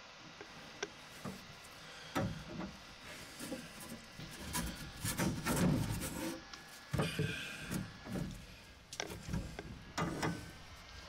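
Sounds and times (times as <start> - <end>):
reamer scraping copper pipe: 1.1 - 11.0.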